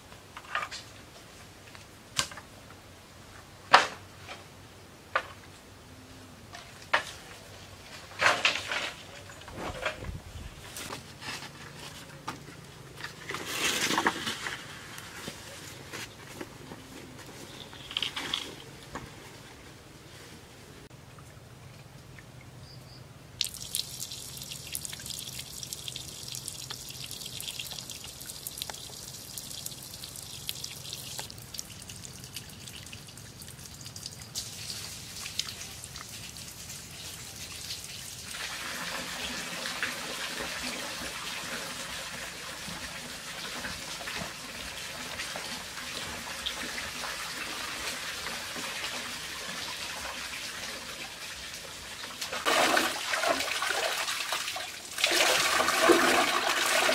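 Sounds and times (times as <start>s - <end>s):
water trickling and dripping: 23.4s - 56.9s.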